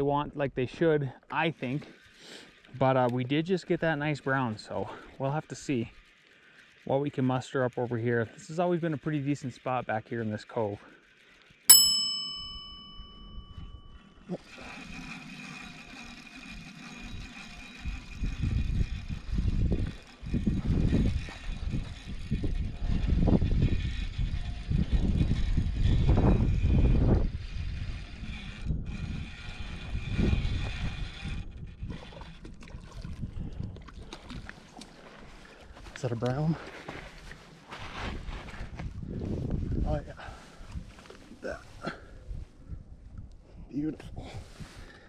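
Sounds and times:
spinning reel whirring: 2.0 - 32.5
ringing chime: 11.7 - 14.4
wind rumbling on microphone: 17.0 - 36.0, 37.1 - 45.0.

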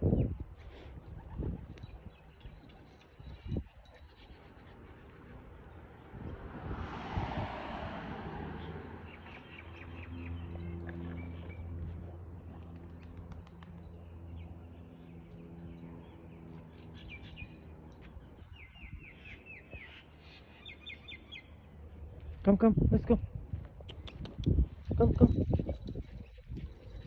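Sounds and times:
low engine hum: 4.7 - 20.2
small birds chirping: 9.0 - 22.4.

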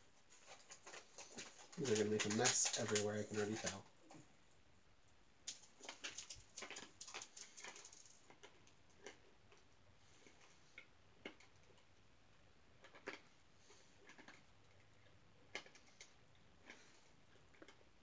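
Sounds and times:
crunchy candy being chewed: 5.5 - 12.0, 12.8 - 18.0.

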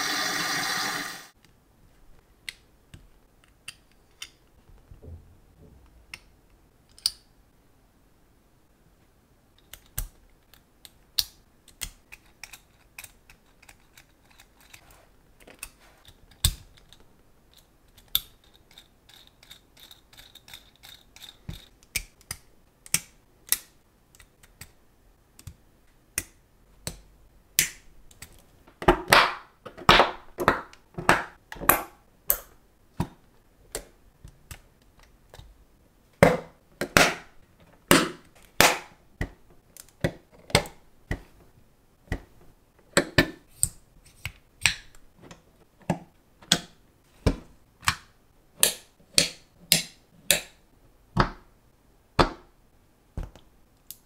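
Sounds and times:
plastic parts clicking together: 6.1 - 7.3, 9.6 - 14.8, 15.4 - 29.0.

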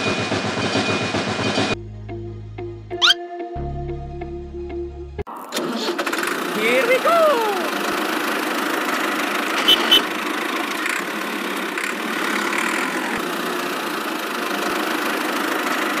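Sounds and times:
tractor engine idling: 5.6 - 16.0.

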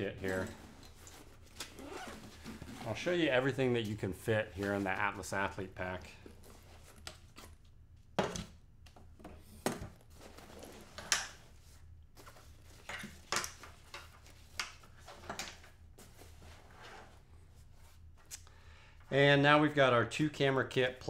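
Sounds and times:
backpack rustling and knocking: 0.3 - 3.1.

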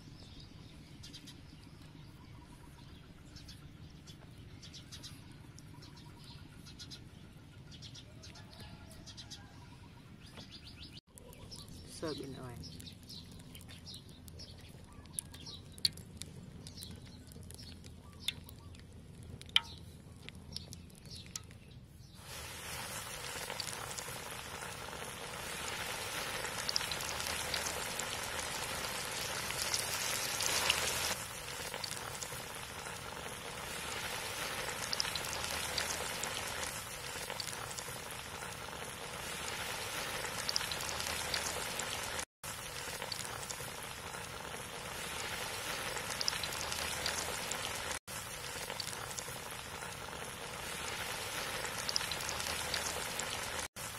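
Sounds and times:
ribs deep-frying in oil: 11.0 - 53.9.

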